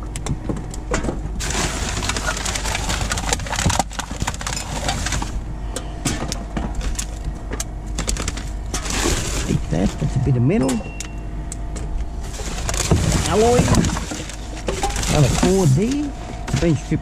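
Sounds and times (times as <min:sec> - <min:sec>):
steady low rumble: 0:00.0 - 0:17.0
rubbish rustling and clinking: 0:00.9 - 0:05.4, 0:12.2 - 0:17.0.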